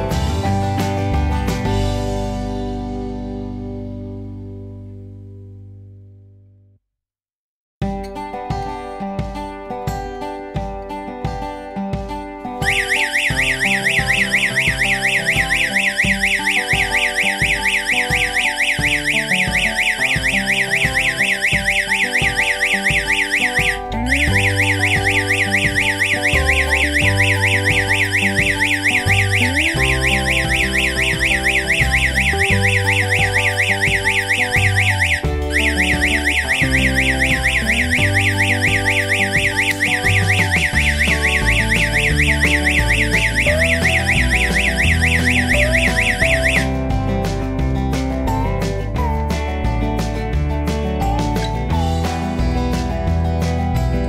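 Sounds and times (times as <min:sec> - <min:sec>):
electronic alarm siren warbling: 0:12.6 - 0:46.8.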